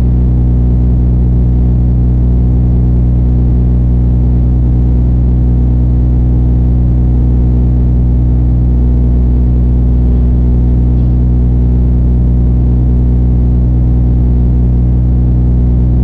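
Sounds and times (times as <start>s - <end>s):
diesel engine droning: 4.0s - 16.0s.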